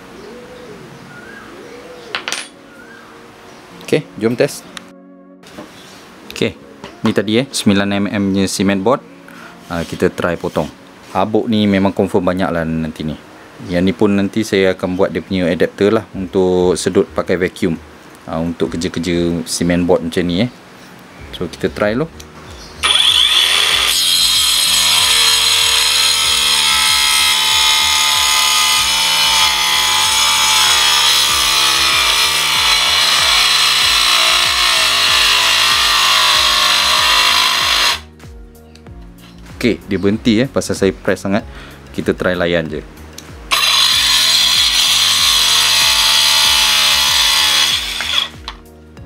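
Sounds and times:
blade grinding through board: 22.8 - 38.1, 43.5 - 48.6
circular saw motor whine: 22.8 - 38.1, 43.5 - 48.6.

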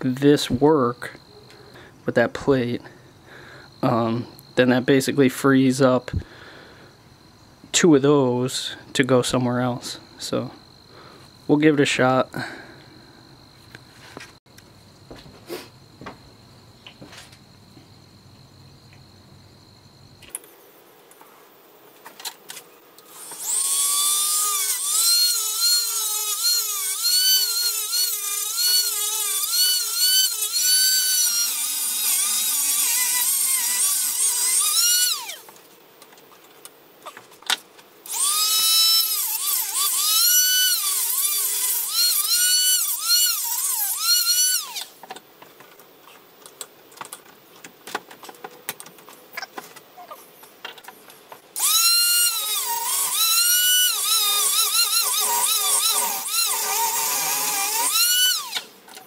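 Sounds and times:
rotary tool cutting whine: 23.0 - 35.5, 38.0 - 45.0, 51.6 - 59.0.

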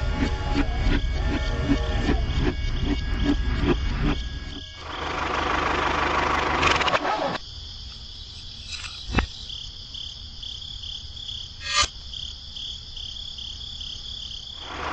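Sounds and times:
insect-like chirping: 0.8 - 6.1, 7.4 - 14.9.

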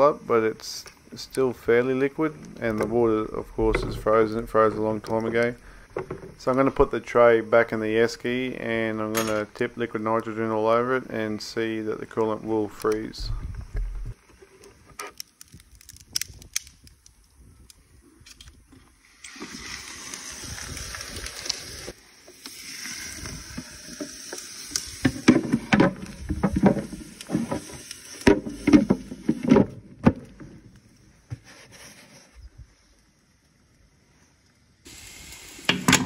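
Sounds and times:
crackling and knocking: 2.3 - 6.9, 25.0 - 31.5
liquid nitrogen hissing: 19.0 - 29.4, 34.9 - 36.0.

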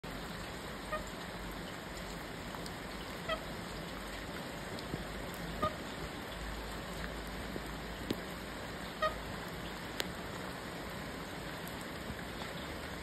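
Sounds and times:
steady rain: 0.0 - 13.0
honk-like bird calls: 0.9 - 1.1, 3.2 - 3.5, 5.6 - 5.8, 9.0 - 9.2.

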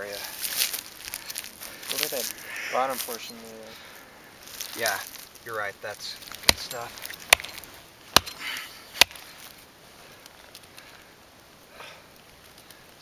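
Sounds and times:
axe chopping into wood: 6.4 - 9.3.

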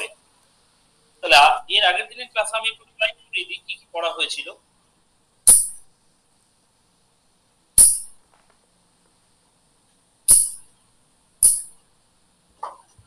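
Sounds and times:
sharp clicks with hissing tail: 11.4 - 11.8.

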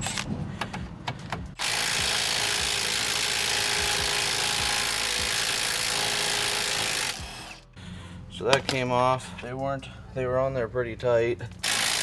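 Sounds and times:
impact wrench hammering: 1.5 - 7.7, 11.6 - 12.0.

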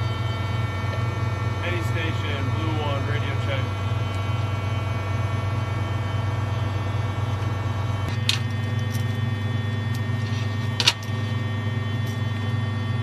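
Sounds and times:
engine drone inside cabin: 0.0 - 13.0.

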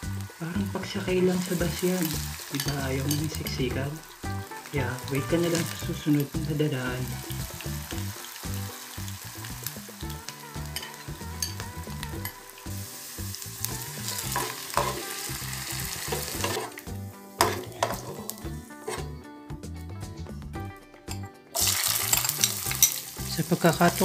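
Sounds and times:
potatoes sizzling in oil: 0.0 - 19.1, 21.6 - 24.0
metal spoon scraping pan: 14.3 - 15.2, 16.0 - 16.8, 17.4 - 19.2, 21.6 - 23.1.

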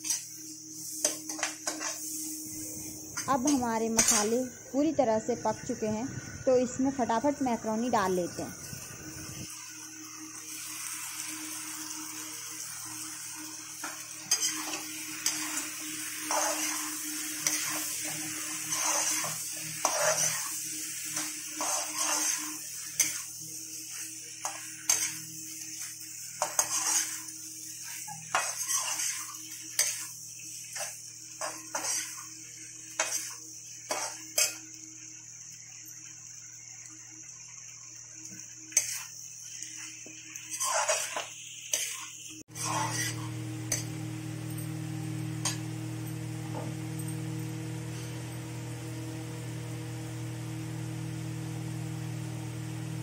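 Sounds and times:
metal spatula scraping a pan: 0.0 - 2.3, 3.2 - 4.5, 13.8 - 32.3, 32.9 - 34.7, 38.7 - 39.1, 39.7 - 43.9
steady sizzle: 0.0 - 53.0.

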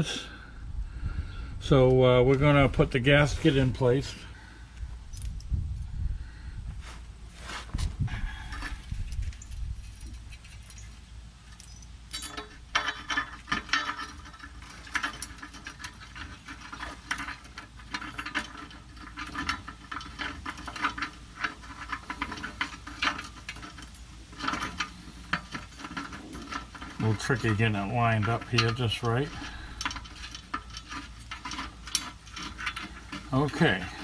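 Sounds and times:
low steady hum: 0.0 - 34.0
metal parts clicking and scraping: 8.1 - 34.0.

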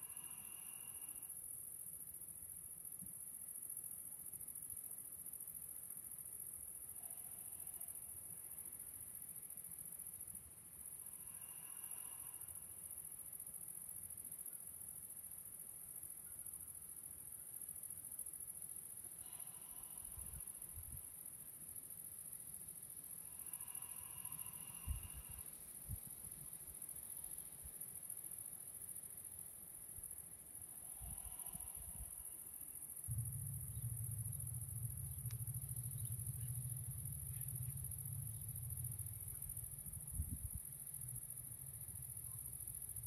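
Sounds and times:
insects chirring: 0.0 - 43.0
low rumble: 33.1 - 43.0.

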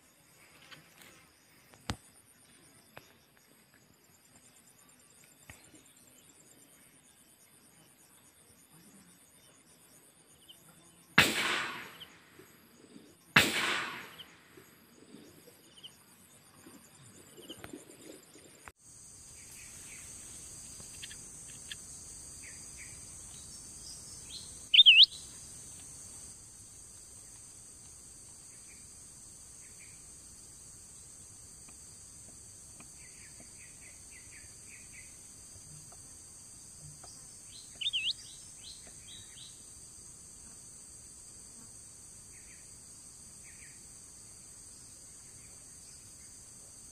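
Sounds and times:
cicadas and crickets droning: 0.0 - 46.9
gunshots echoing: 11.2 - 12.2, 13.4 - 14.4
wavering bird chirp: 24.3 - 25.3, 37.7 - 38.4.

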